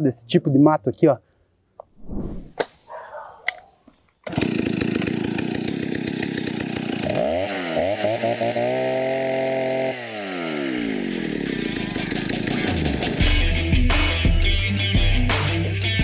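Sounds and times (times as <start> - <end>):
chainsaw revving: 4.2 - 13.4.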